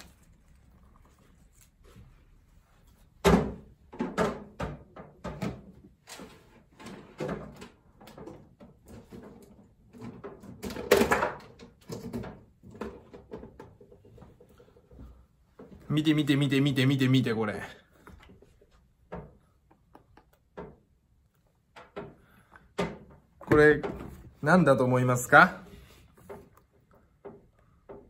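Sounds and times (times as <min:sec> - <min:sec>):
hard objects knocking and clattering: 0:18.2 - 0:24.4.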